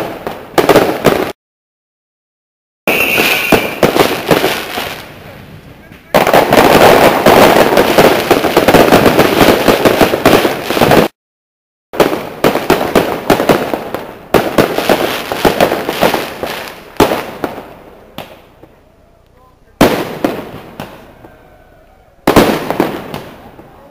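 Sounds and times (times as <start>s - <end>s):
fireworks crackling bangs: 0.0s - 1.4s, 2.9s - 11.2s, 11.9s - 21.5s, 22.2s - 23.9s.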